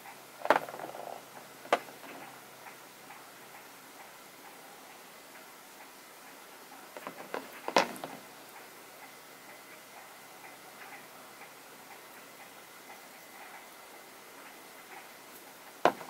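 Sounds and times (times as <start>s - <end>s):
stones clicking and knocking: 7.0s - 8.2s.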